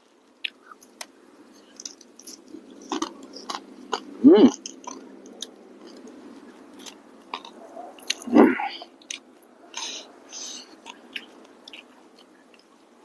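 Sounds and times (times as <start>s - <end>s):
person chewing crunchy food: 1.6s - 8.4s
person humming: 4.2s - 4.6s.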